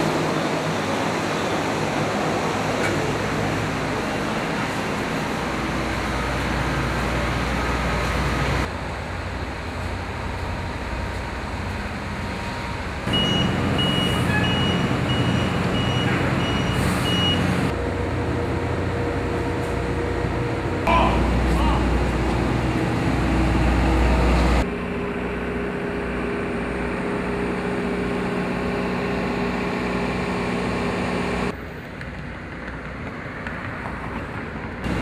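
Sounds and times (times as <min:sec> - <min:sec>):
heavy vehicle traffic noise: 0:00.0 - 0:35.0
vehicle backup alarm beeping: 0:13.1 - 0:17.7.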